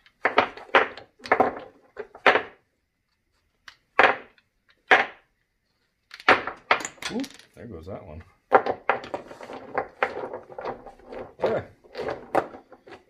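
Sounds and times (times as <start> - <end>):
batteries clacking on wooden bench: 0.0 - 2.7, 3.6 - 5.3, 6.0 - 7.5.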